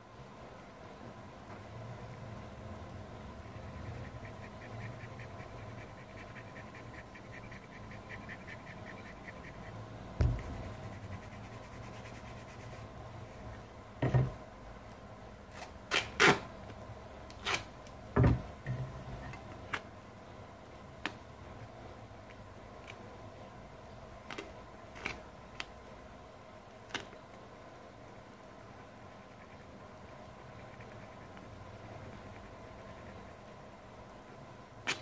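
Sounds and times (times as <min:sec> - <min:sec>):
duct tape ripping: 0:15.5 - 0:16.4, 0:17.3 - 0:17.7.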